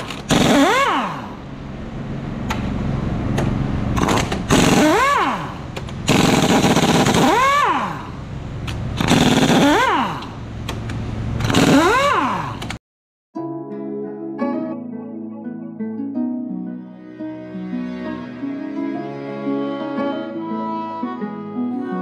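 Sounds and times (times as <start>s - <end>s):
pneumatic impact wrench hammering: 0.0s - 1.4s, 3.4s - 12.8s.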